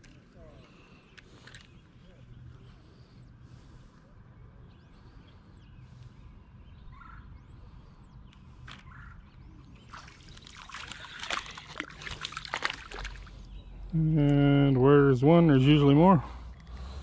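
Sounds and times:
irregular splashing and clicking: 9.8 - 13.4.

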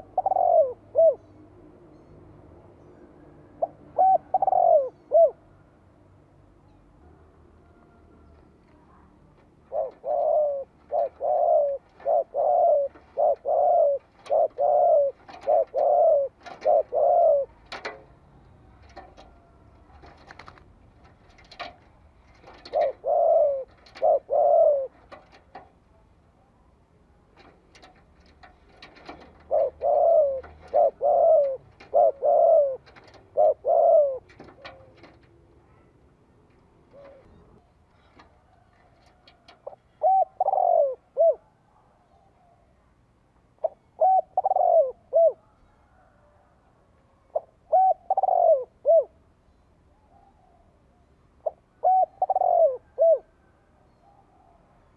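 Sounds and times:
dove cooing: 0.0 - 1.3, 3.5 - 5.6, 7.6 - 18.2, 18.8 - 25.8, 27.4 - 36.0, 36.7 - 42.7, 43.6 - 46.6, 47.2 - 49.2, 51.4 - 54.6.

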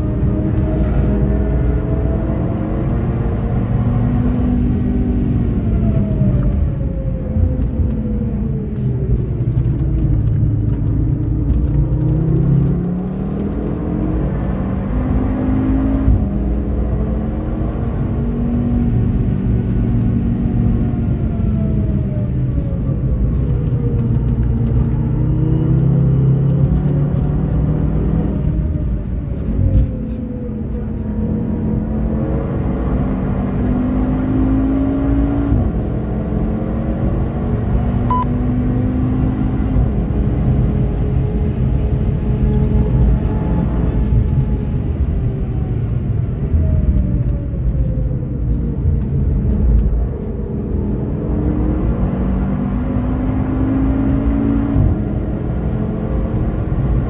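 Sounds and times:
car engine accelerating: 0.0 - 57.0.

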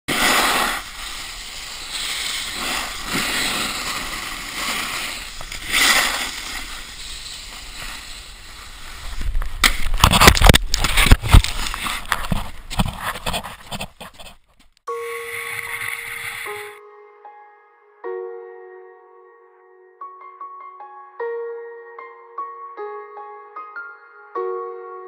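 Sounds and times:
snowboard scraping over snow: 0.1 - 9.6, 15.1 - 16.8.

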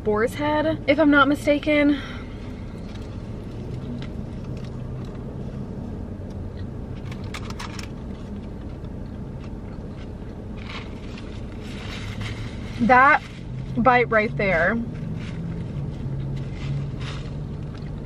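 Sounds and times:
car engine hum inside cabin: 0.0 - 18.0
faint chewing: 2.6 - 5.6.

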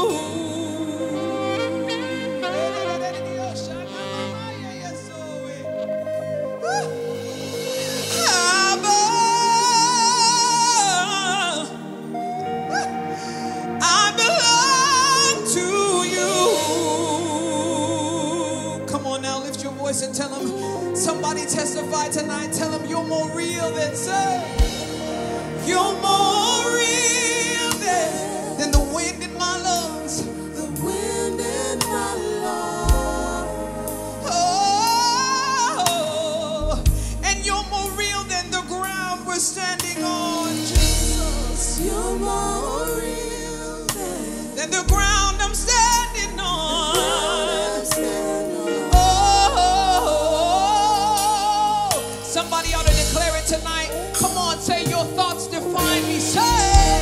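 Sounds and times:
instruments accompanying: 0.0 - 10.8
band with bass and drums: 5.8 - 9.6, 24.5 - 35.2, 39.8 - 57.0
man singing along: 6.6 - 12.0, 13.7 - 57.0
woman singing: 40.8 - 52.6.

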